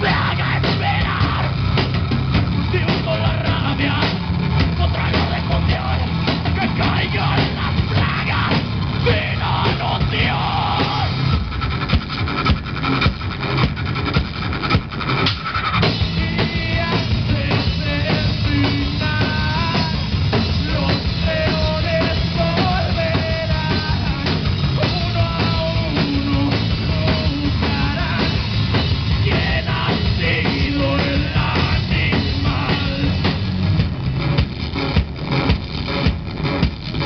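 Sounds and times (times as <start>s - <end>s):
bass guitar: 0.0s - 37.0s
drum kit: 0.0s - 37.0s
electric guitar: 0.0s - 37.0s
person singing: 16.1s - 20.1s, 29.2s - 33.4s.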